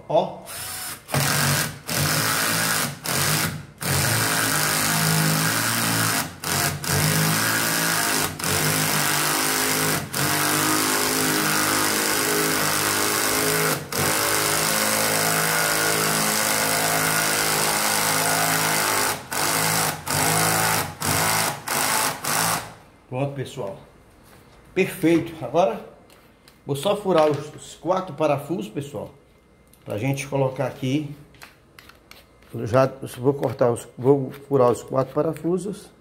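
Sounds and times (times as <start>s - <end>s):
cordless drill driving screw: 0.5s - 22.7s.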